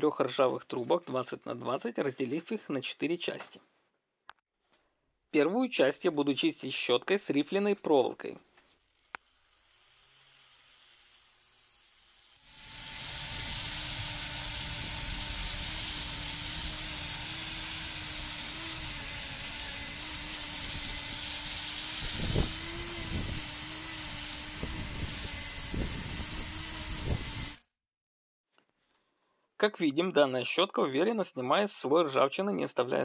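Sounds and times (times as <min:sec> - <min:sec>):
angle grinder wire brush on metal: 0:08.8 - 0:27.6.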